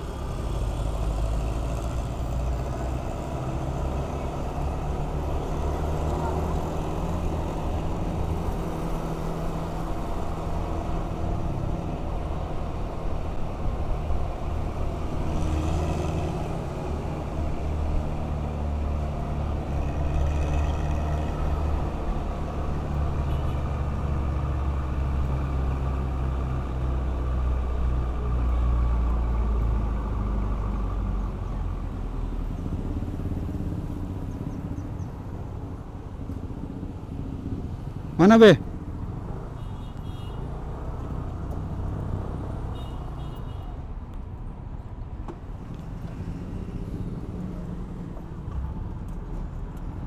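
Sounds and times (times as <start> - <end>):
bus passing close by: 0.0 - 39.6
road noise: 0.0 - 50.0.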